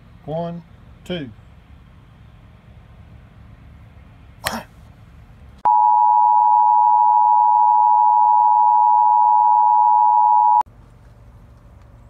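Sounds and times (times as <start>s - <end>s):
electronic test tone beep: 5.7s - 10.6s.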